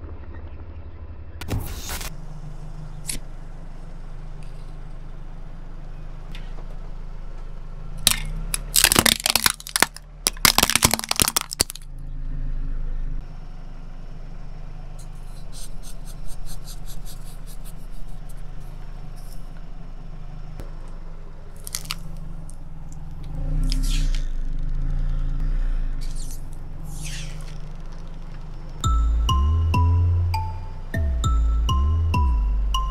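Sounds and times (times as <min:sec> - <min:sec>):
car engine hum: 0:00.0 - 0:32.9
plastic tube cracking under tyre: 0:08.0 - 0:11.9, 0:21.5 - 0:23.0
cellophane crackling: 0:08.7 - 0:11.8.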